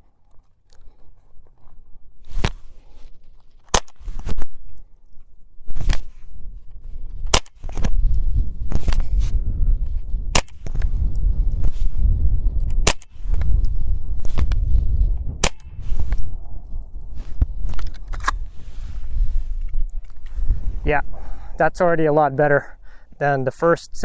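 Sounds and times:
rifle single shots: 10.3s - 10.8s, 12.8s - 13.2s, 15.4s - 15.8s.

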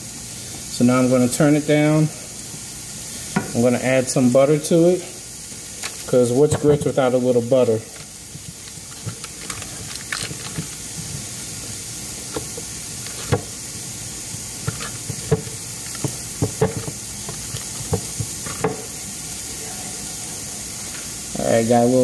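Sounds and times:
food sizzling in a skillet: 0.0s - 22.0s
sharp frying pops: 2.2s - 19.5s.

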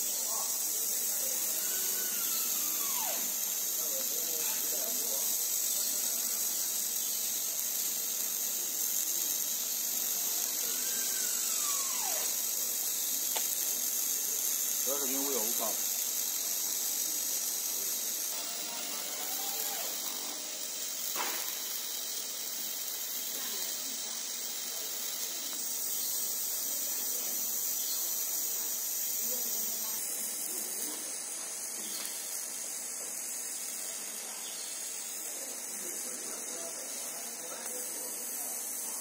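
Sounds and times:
laser cutter hiss: 0.0s - 39.0s.

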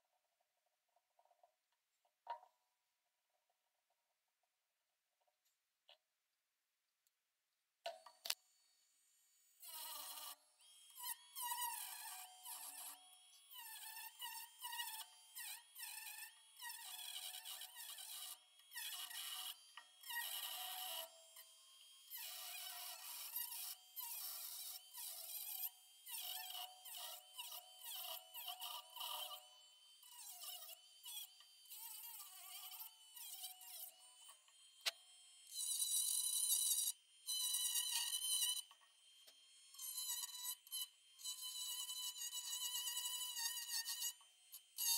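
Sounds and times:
rotary tool cutting wood: 9.6s - 44.9s.

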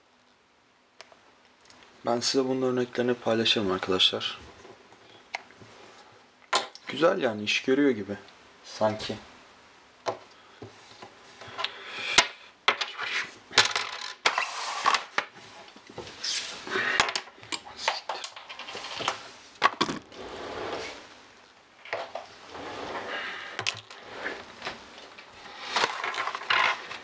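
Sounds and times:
plastic parts clicking and clattering: 12.7s - 15.3s, 17.0s - 20.1s, 25.1s - 27.0s.

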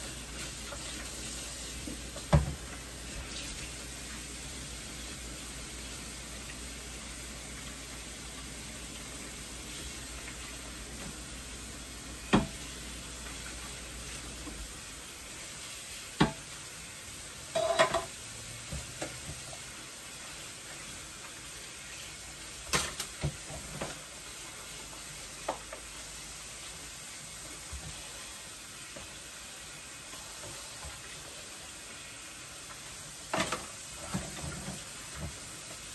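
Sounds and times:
steady hiss: 0.0s - 35.9s
dishes clinking and knocking: 17.5s - 18.1s.

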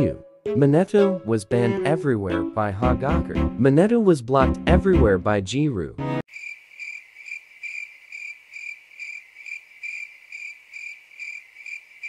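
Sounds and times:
crickets chirping: 6.3s - 12.0s.

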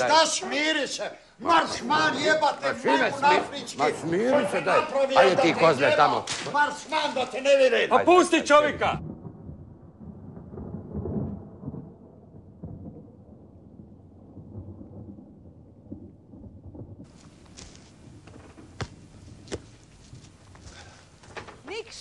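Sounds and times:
thunder rumbling: 8.0s - 21.7s
open-air ambience: 17.0s - 22.0s.

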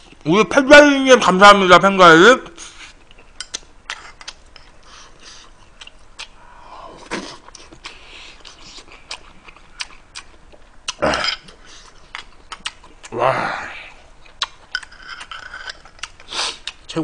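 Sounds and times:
man chewing food: 2.6s - 13.2s, 13.9s - 16.9s.

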